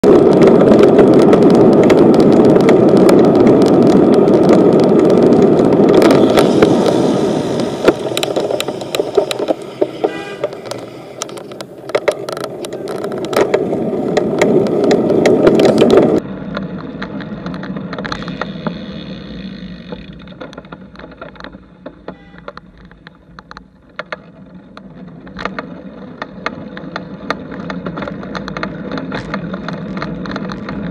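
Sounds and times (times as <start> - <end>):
wind buffeting microphone: 0.0 - 16.2
bicycle road noise: 0.0 - 30.9
bike clicks and rattles: 0.0 - 30.9.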